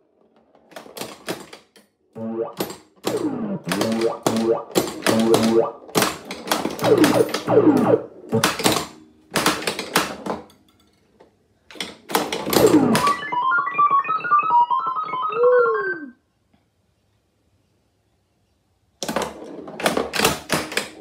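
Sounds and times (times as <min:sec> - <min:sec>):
falling-pitch electronic sound effect: 0:02.2 - 0:05.8, 0:06.8 - 0:08.4, 0:12.6 - 0:16.1
stepping electronic beeps: 0:02.2 - 0:05.8, 0:06.8 - 0:08.4, 0:12.6 - 0:16.1
swooping electronic tone: 0:02.2 - 0:05.8, 0:06.8 - 0:08.4, 0:12.6 - 0:16.2
pinball ball and coils knocking: 0:02.2 - 0:10.3.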